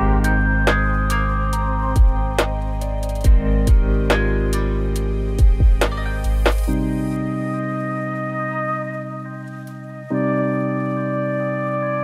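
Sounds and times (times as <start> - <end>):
sustained music chord: 0.0 - 12.0.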